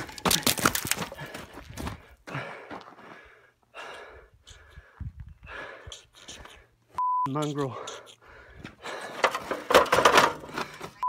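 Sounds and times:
man breathing hard: 0:01.0 - 0:06.8, 0:07.6 - 0:09.7, 0:10.4 - 0:11.0.

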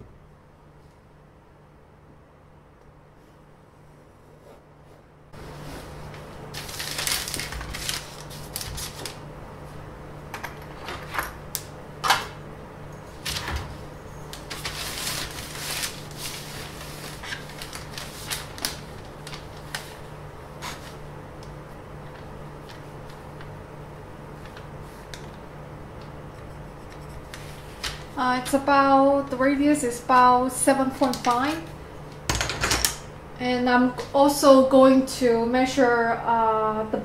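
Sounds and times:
pencil scratching on paper: 0:26.3 - 0:27.6.

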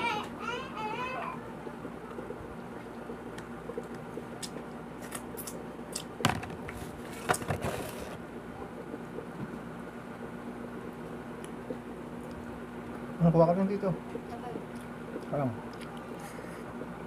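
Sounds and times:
steady low hum: 0:00.0 - 0:17.0
chewing with mouth clicks: 0:14.2 - 0:16.9.

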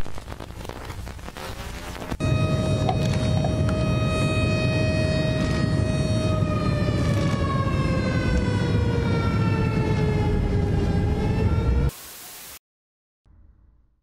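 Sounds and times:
siren-like warning tone: 0:02.2 - 0:11.9.

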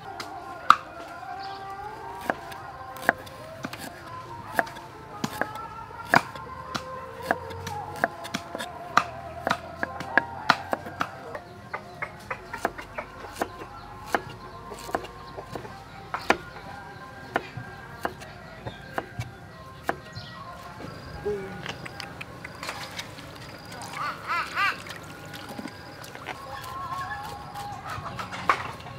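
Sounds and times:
background music: 0:00.0 - 0:28.9
cleaver chopping on wooden board: 0:02.2 - 0:20.2.

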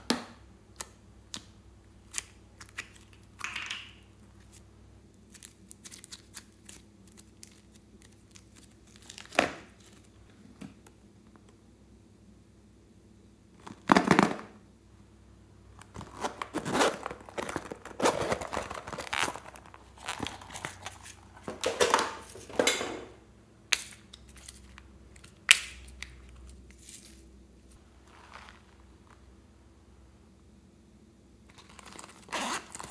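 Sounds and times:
zipper rasping: 0:32.2 - 0:32.9.

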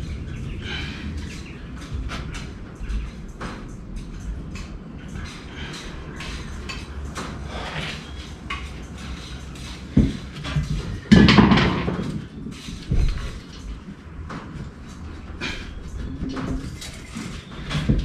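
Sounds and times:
loud metal clatter: 0:10.7 - 0:12.4.

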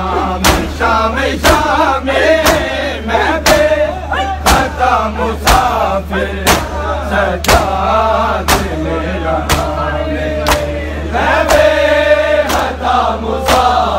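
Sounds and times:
men chanting in unison: 0:00.0 - 0:13.9.

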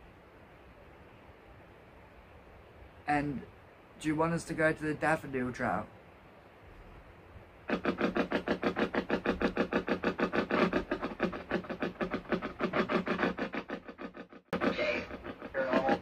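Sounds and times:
radio static chopping rapidly: 0:07.7 - 0:16.0.

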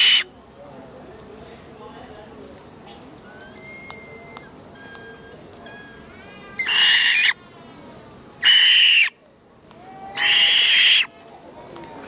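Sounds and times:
owl screeching: 0:00.0 - 0:00.3, 0:06.6 - 0:07.4, 0:08.4 - 0:09.2, 0:09.8 - 0:11.1.

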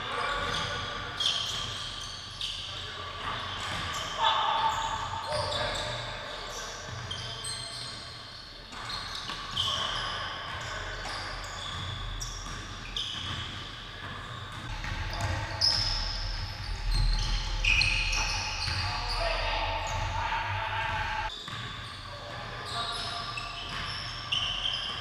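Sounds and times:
sneakers squeaking: 0:00.0 - 0:25.0
basketball bouncing: 0:11.7 - 0:21.7.

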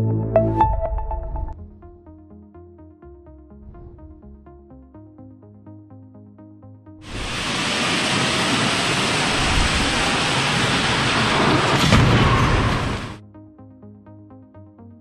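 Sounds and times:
steady rushing noise: 0:07.0 - 0:11.8
loud car crash: 0:10.6 - 0:13.2.

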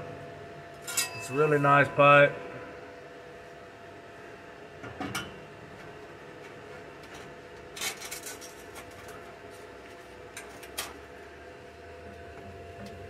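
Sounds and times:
metal tubing clinking and scraping: 0:00.8 - 0:01.6.

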